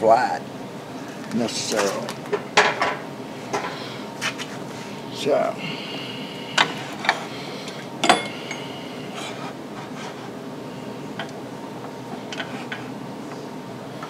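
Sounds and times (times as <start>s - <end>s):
metal clanks: 8.0s - 8.6s.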